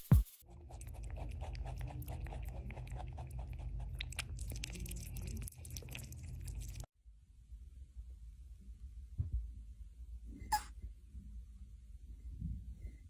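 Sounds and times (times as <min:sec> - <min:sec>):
pet crunching food: 0:00.5 - 0:06.9.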